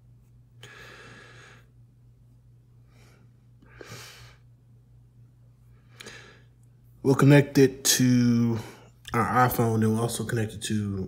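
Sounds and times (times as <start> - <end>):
low electrical hum: 0.0 - 11.0
soft breathing: 0.6 - 1.9, 2.7 - 4.6, 5.6 - 7.0.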